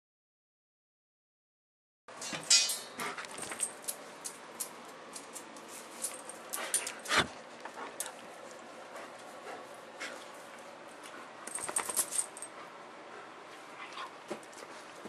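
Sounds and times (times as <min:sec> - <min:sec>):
loud ringing clank: 0:02.2 - 0:03.0
metal bowls clinking: 0:02.2 - 0:03.2.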